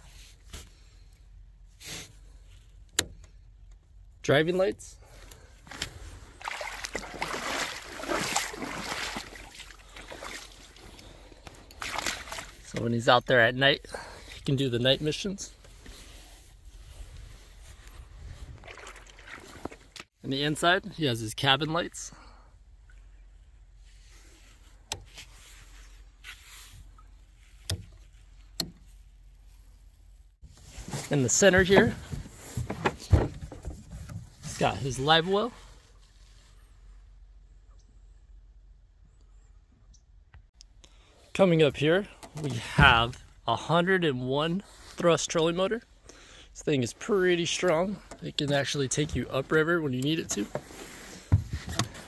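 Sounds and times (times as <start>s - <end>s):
scuffing and rustling on a boat: 0.0s - 3.5s, 5.0s - 13.0s, 14.0s - 20.1s, 23.3s - 37.2s, 47.1s - 52.0s.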